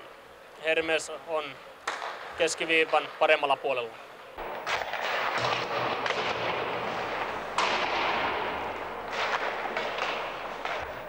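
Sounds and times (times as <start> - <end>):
pucks banging against boards: 4.4 - 11.0.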